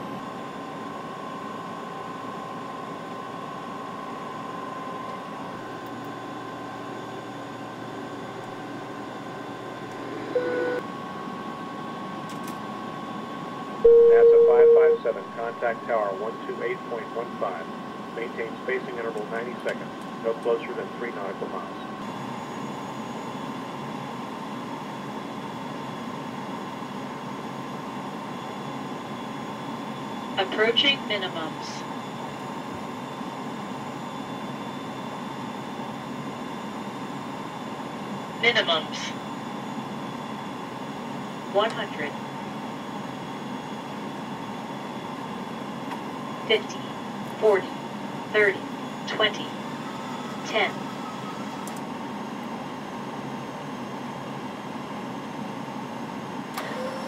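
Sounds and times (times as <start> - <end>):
faint steady whine: 0.0 - 57.0
short beep: 13.8 - 15.0
faint steady tone: 13.8 - 15.9.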